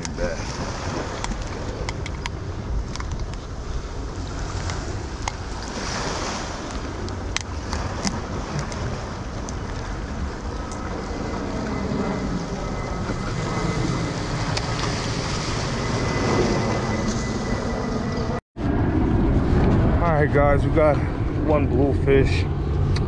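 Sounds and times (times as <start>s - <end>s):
wind buffeting microphone: 0.0s - 23.0s
surf washing against rocks: 4.2s - 10.3s.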